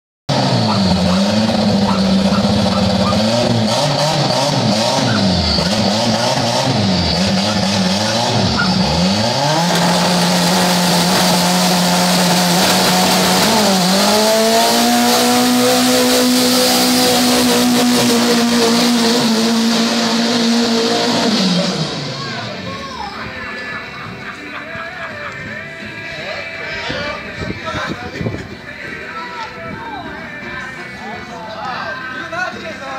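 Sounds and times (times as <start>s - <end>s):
car engine revving: 0.3s - 22.8s
tyres squealing on asphalt: 0.3s - 24.5s.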